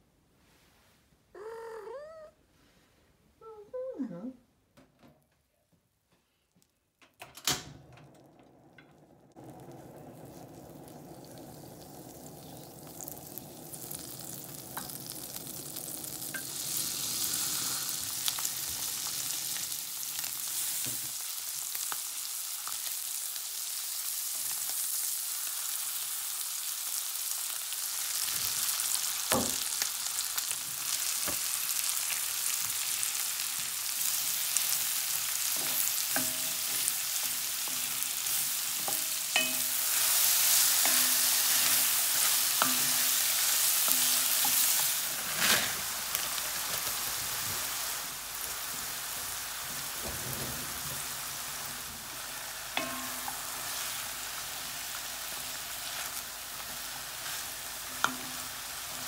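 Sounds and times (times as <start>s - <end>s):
chicken sizzling in a pan: 8.8s - 59.0s
utensils knocking against pan: 38.8s - 39.8s.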